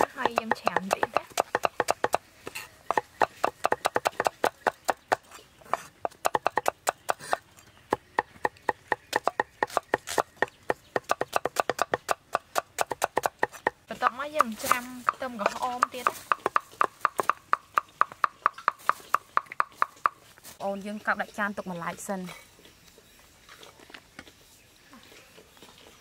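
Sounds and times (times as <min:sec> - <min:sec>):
knife chopping on wooden board: 0:00.0 - 0:02.2, 0:02.9 - 0:20.2.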